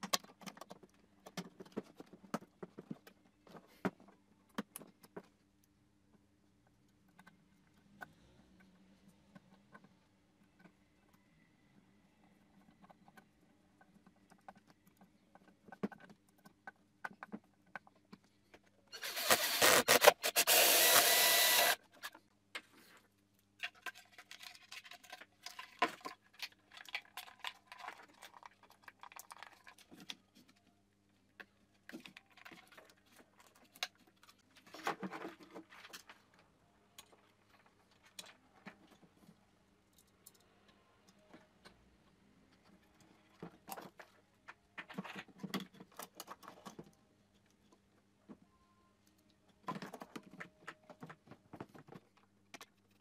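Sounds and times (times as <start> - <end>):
plastic parts clicking and rattling: 0.0 - 5.6, 23.4 - 30.7, 42.5 - 47.9, 49.5 - 53.0.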